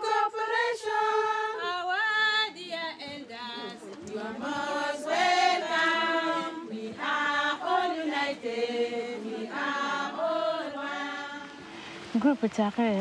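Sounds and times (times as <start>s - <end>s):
group of voices singing: 0.0s - 11.8s.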